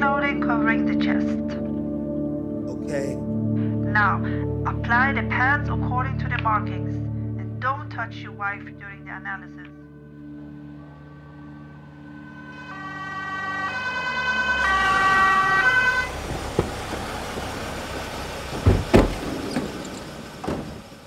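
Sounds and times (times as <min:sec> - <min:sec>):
ambulance two-tone siren: 0:09.9 - 0:18.0
vehicle low rumble: 0:10.1 - 0:21.0
loud thumps: 0:16.0 - 0:20.9.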